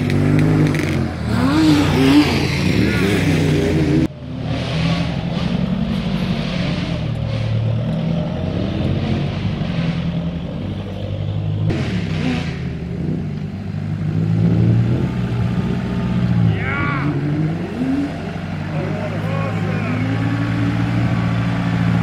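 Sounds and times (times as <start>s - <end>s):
truck engine revving under load: 0.0s - 22.0s.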